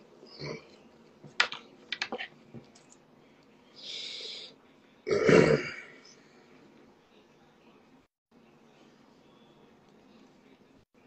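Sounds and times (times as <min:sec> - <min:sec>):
man burping: 0:00.3 - 0:00.7, 0:05.0 - 0:06.0.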